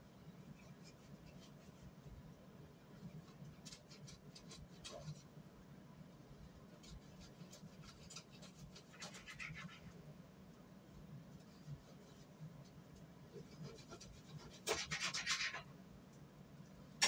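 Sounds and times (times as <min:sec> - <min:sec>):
hands scratching and clicking on counter: 0:03.0 - 0:05.3, 0:06.7 - 0:10.0, 0:11.3 - 0:15.7.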